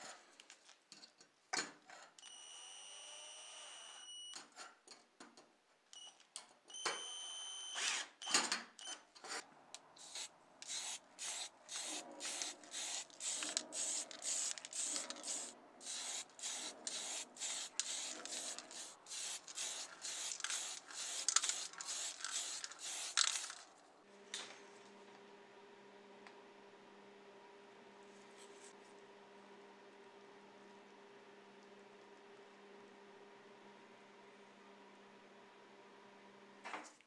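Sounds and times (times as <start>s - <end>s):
cordless drill whining: 7.7s - 8.1s
spray paint hissing bursts: 10.0s - 23.6s.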